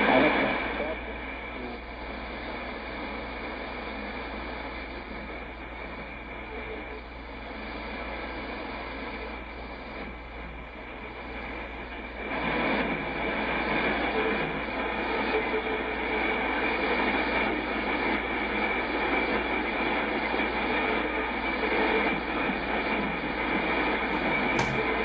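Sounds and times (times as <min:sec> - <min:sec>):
shortwave static hiss: 0:00.0 - 0:25.0
weak radio signal: 0:00.0 - 0:25.0.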